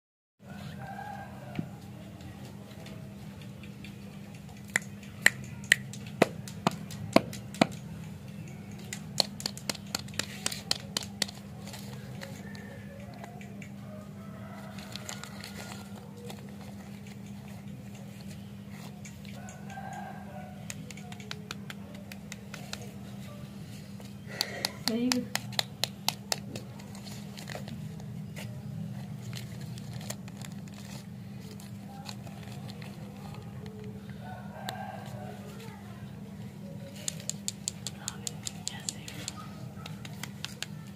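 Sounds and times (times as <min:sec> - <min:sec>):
steady low hum: 0:00.4 - 0:40.9
finger clicks: 0:03.4 - 0:11.4, 0:12.2 - 0:13.8, 0:20.6 - 0:23.0, 0:36.9 - 0:40.9.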